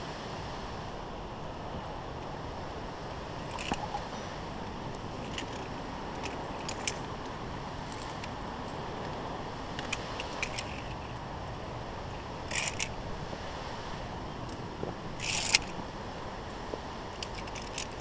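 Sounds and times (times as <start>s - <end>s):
carabiners clinking on steel cable: 3.4s - 4.1s, 5.2s - 7.1s, 9.8s - 11.1s, 12.4s - 13.0s, 15.2s - 15.8s, 17.2s - 18.0s.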